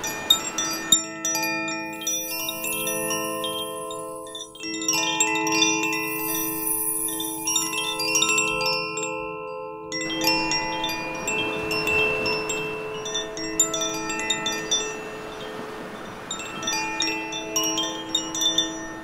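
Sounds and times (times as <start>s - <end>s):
waves washing on rocks: 0.0s - 8.6s, 10.3s - 19.0s
wind chime ringing: 0.0s - 19.0s.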